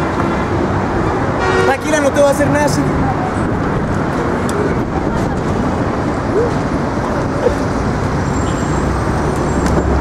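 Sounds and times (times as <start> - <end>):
road traffic: 0.0 - 10.0.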